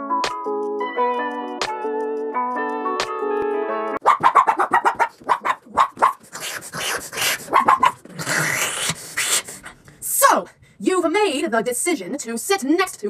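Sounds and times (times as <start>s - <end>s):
woman making dog yaps: 4.0s - 8.1s.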